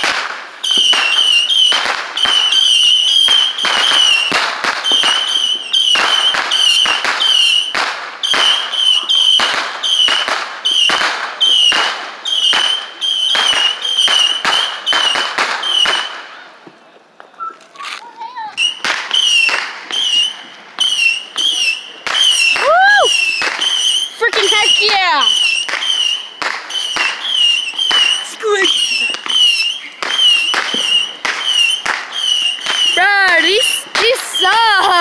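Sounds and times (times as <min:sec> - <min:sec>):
fireworks bangs: 0:00.0 - 0:35.0
high whistle: 0:00.6 - 0:16.2, 0:18.6 - 0:34.6.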